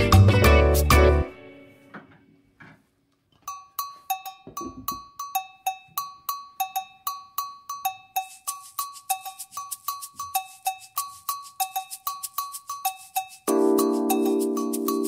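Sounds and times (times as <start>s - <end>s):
salsa music: 0.0s - 1.8s, 8.2s - 15.0s
metallic cowbell-like percussion: 3.4s - 15.0s.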